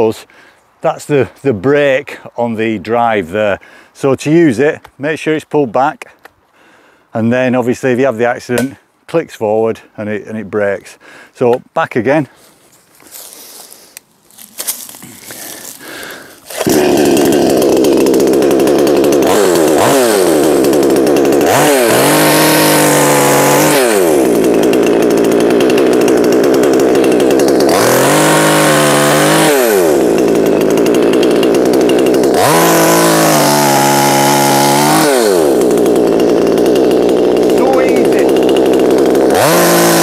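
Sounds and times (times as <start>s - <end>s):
chainsaw cutting timber: 13.0s - 40.0s
chainsaw revving: 14.6s - 40.0s.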